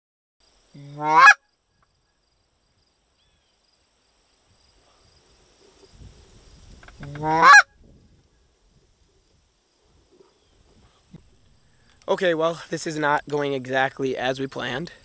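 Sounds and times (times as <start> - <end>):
high-pitched insect trill: 0.4 - 7.2
goose honks: 0.8 - 1.4, 7.1 - 7.7.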